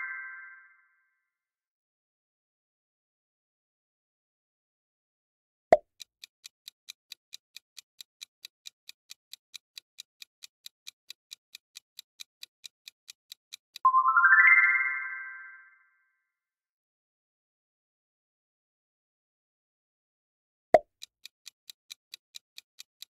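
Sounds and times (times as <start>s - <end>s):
clock-like ticking: 5.8s - 13.9s, 20.8s - 23.0s
rising synth chime: 13.9s - 15.8s.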